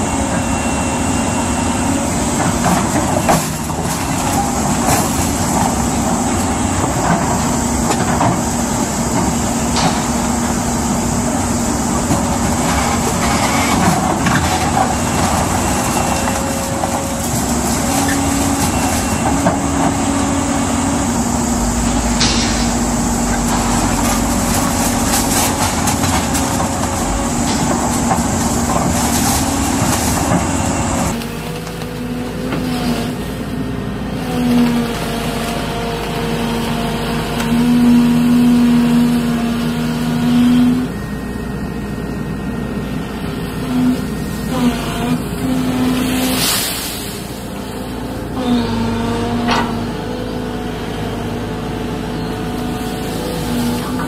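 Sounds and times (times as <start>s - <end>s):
excavator diesel engine: 0.0s - 54.0s
second excavator engine: 0.0s - 54.0s
concrete being crushed: 21.9s - 31.2s.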